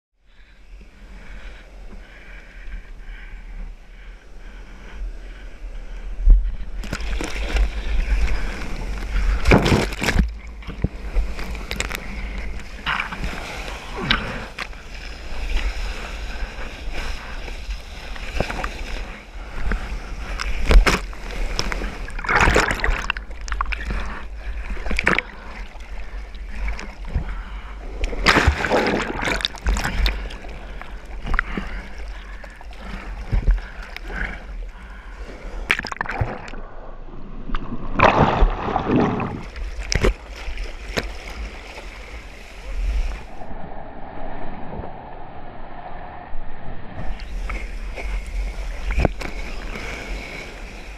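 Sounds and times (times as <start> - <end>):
seawater splashing and rushing: 4.7 - 36.8, 37.6 - 45.0, 46.9 - 50.9
low surf rumble: 41.5 - 50.9.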